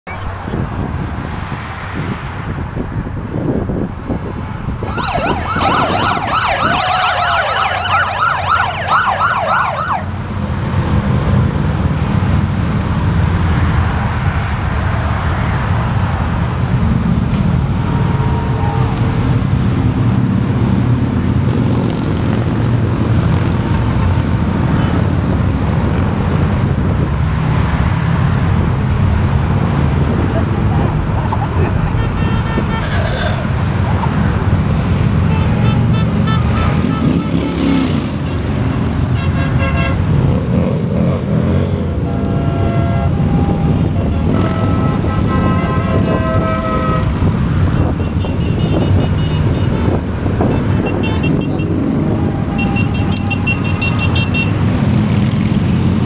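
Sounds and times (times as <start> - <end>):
highway traffic: 0.0 - 56.0
motorcycle engines rumbling: 0.0 - 56.0
siren yelping: 4.8 - 10.1.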